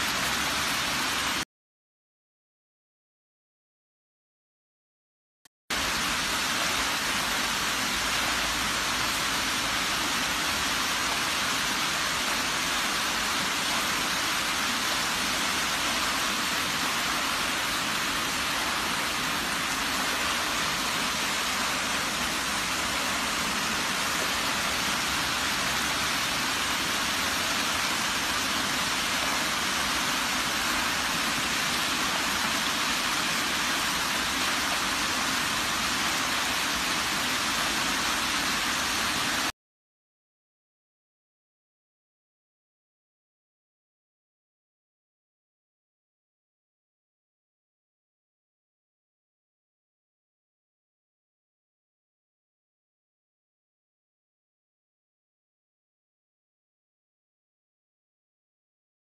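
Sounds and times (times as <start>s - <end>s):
rainwater rushing down street: 0.0s - 1.4s, 5.7s - 39.5s.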